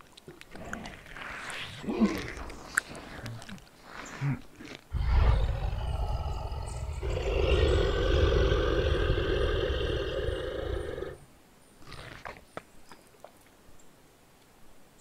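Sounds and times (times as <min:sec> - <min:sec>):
deep creature growl: 0:00.5 - 0:03.2, 0:04.3 - 0:11.2.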